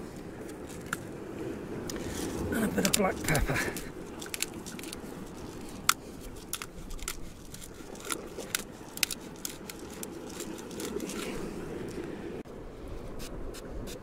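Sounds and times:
salt grinder crunching clicks: 5.7s - 11.3s.

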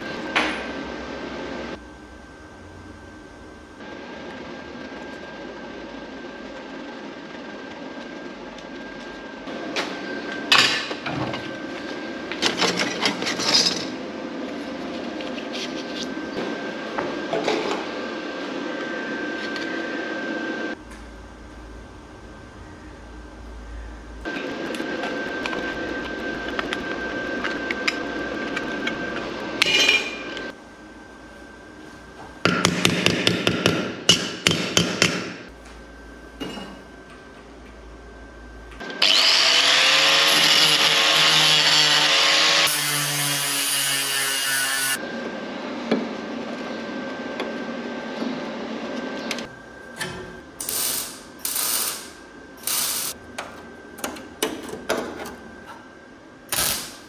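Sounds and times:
power tools cutting sheet metal: 38.8s - 45.0s.

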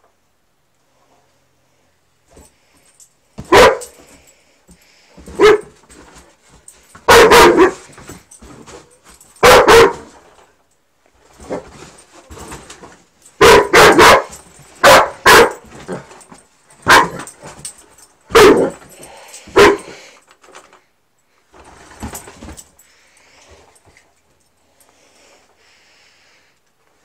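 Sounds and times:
dog barking: 3.4s - 4.0s, 5.3s - 5.8s, 7.1s - 7.9s, 9.4s - 10.1s, 13.4s - 16.0s, 16.8s - 17.3s, 18.3s - 18.8s, 19.5s - 20.0s.

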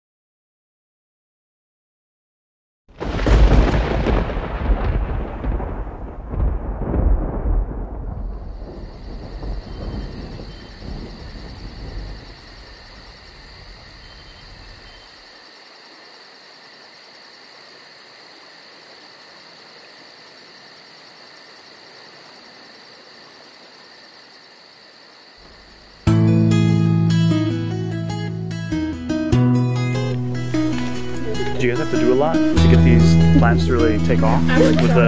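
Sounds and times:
insects chirring: 3.0s - 28.9s, 29.8s - 35.0s
acoustic guitar music: 26.0s - 35.0s.

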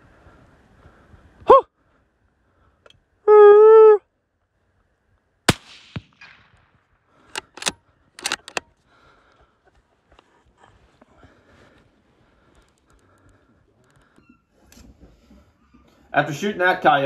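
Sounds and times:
rifle shot: 5.5s - 8.6s
quick sharp clicks: 7.2s - 8.7s.

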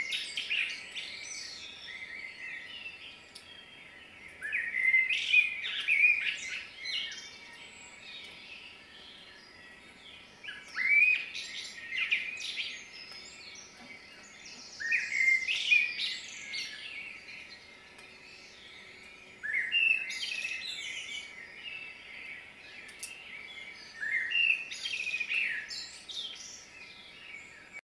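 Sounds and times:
songbird singing: 0.0s - 27.8s.

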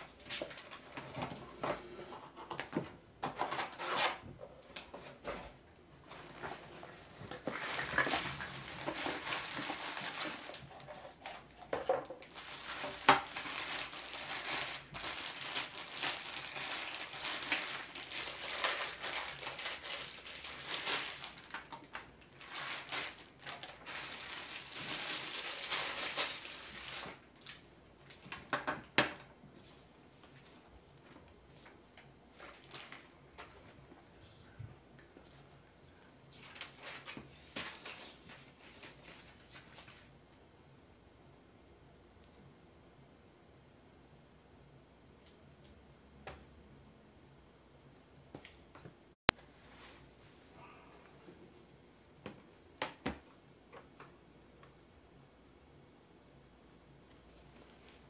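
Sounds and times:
cardboard packing handled: 2.5s - 27.2s
plastic bag crinkling: 6.1s - 28.5s, 32.4s - 33.8s.

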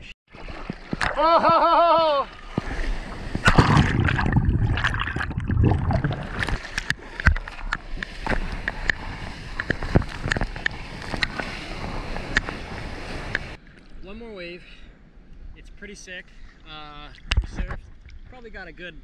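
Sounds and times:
ocean water rushing and splashing: 0.3s - 13.6s.

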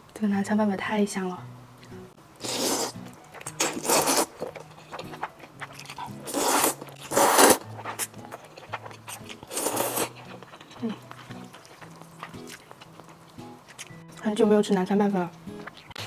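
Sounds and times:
soft background music: 0.1s - 16.0s
person slurping noodles: 2.4s - 11.0s.

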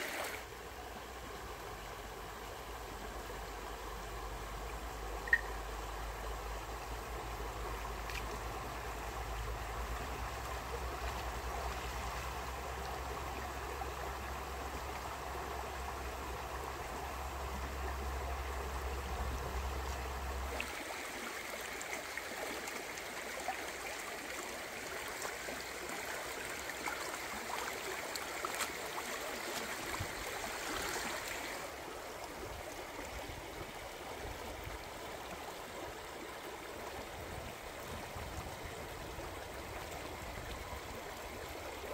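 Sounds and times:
stream running over rocks: 0.0s - 41.9s.

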